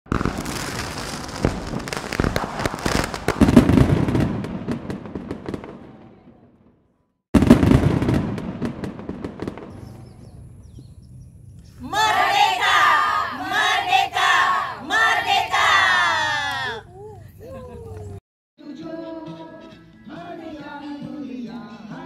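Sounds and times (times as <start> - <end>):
fireworks bursting and crackling: 0.1 - 6.5, 7.4 - 10.6.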